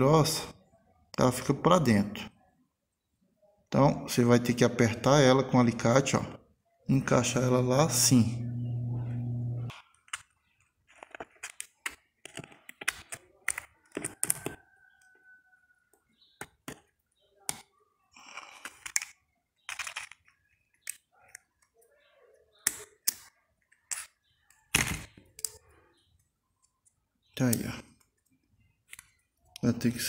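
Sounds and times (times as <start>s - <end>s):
small parts clicking and tapping: 17.5s - 21.8s, 22.6s - 29.7s.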